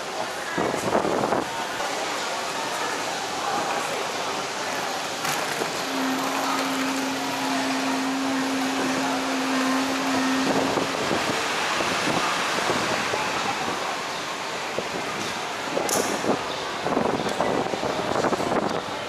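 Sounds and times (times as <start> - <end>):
busy walkway background noise: 0.0 - 19.0
steady low tone: 5.8 - 12.1.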